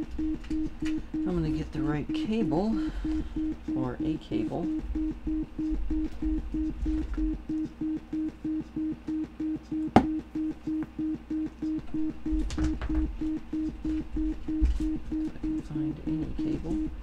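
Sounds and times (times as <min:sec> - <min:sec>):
synth sine-wave beeping: 0:00.0 - 0:17.0.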